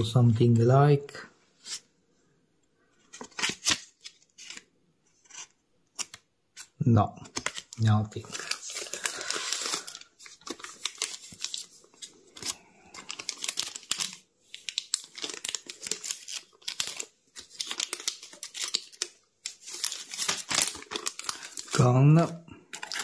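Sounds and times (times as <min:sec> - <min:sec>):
plastic wrapping crinkling: 0:07.2 - 0:23.0.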